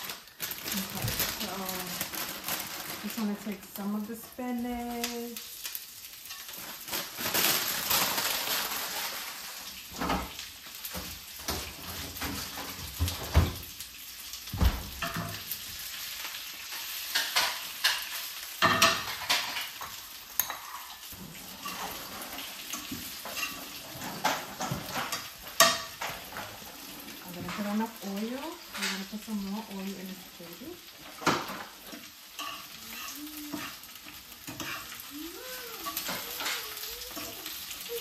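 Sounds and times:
spinach sizzling in hot oil: 0.0 - 38.0.

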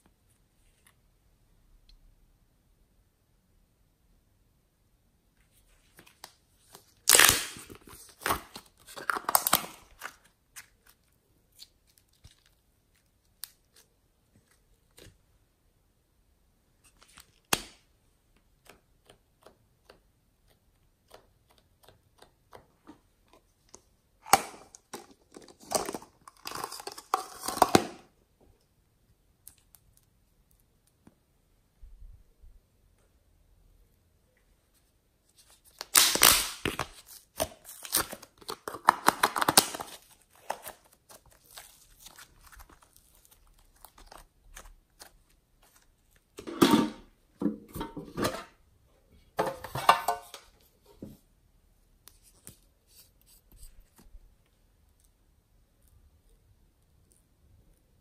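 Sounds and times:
crinkling and tearing: 5.9 - 15.2, 23.3 - 28.0, 35.3 - 46.4.

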